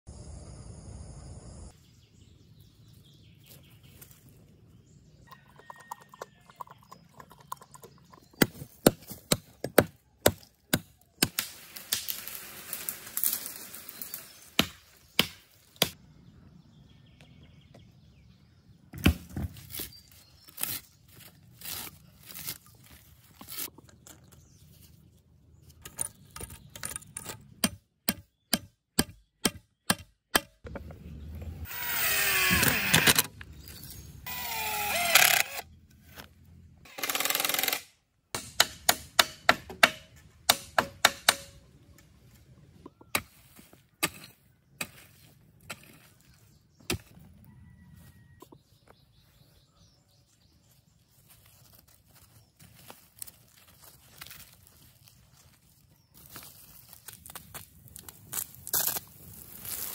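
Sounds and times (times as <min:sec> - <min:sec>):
wood and tools knocking: 0:38.4 - 0:41.6.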